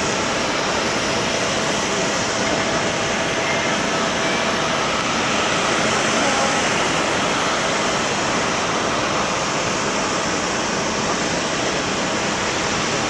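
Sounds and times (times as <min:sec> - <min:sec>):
jet engines roaring at takeoff: 0:00.0 - 0:13.0.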